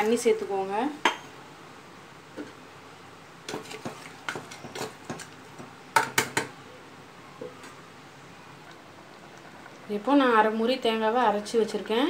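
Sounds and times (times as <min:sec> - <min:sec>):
spoon scraping and knocking pot: 0:03.5 - 0:06.5.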